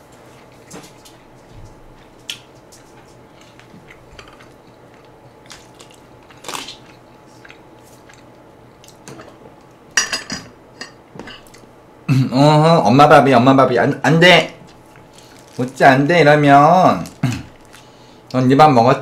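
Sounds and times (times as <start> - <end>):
chewing and biting: 2.2 - 9.0
dishes clattering: 10.0 - 11.6.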